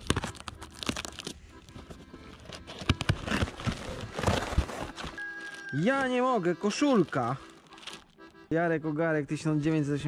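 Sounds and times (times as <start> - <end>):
packing tape ripping: 0.0 - 1.4, 2.4 - 6.2, 6.8 - 8.3
paper packing rustling: 0.0 - 8.4.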